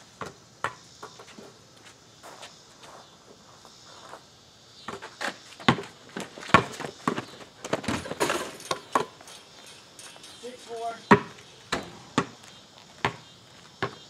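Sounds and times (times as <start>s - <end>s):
basketball bouncing on asphalt: 0.1s - 1.4s, 4.8s - 9.2s, 11.0s - 14.0s.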